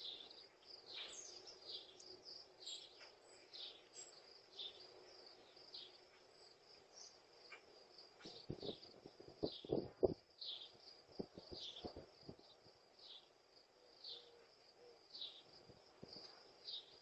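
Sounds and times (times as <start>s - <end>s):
high insect trill: 0.0s - 17.0s
small birds chirping: 0.0s - 17.0s
short low thuds: 8.4s - 10.2s.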